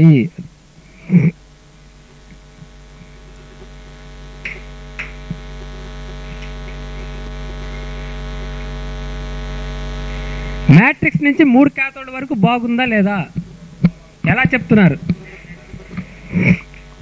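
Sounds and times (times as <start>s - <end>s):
electrical mains hum: 0.0s - 17.0s
faint clicks: 4.4s - 5.5s, 6.1s - 7.1s.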